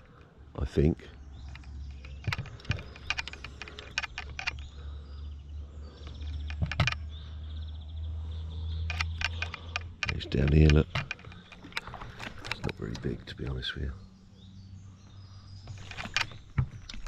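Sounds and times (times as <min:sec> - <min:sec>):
handling clicks and rattles: 0:00.8 - 0:05.0, 0:05.8 - 0:07.2, 0:08.8 - 0:13.7, 0:15.7 - 0:17.0.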